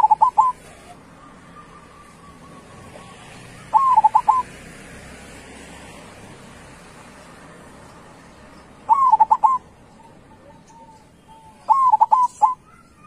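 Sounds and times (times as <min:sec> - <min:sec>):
dove cooing: 0:00.0 - 0:04.5, 0:08.8 - 0:13.0.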